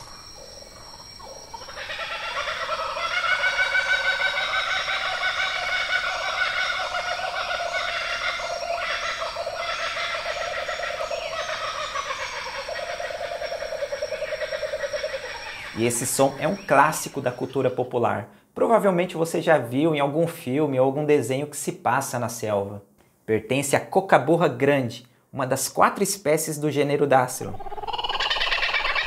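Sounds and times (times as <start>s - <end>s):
kookaburra laughing call: 1.5s - 17.5s, 27.5s - 29.0s.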